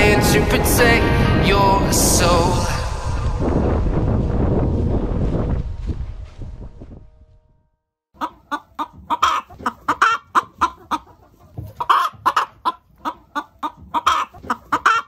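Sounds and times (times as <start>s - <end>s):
chickens clucking: 8.2s - 15.0s.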